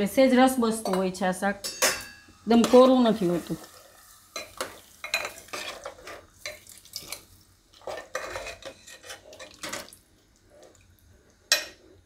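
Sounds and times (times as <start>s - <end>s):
metal ladle clinking and scraping pot: 4.4s - 7.2s, 7.8s - 9.9s.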